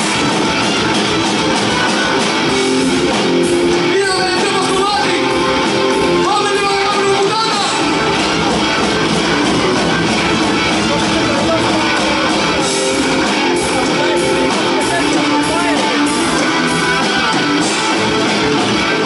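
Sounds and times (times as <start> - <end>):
live metal band playing: 0.0 - 19.0
person singing: 3.7 - 5.6, 10.8 - 18.0.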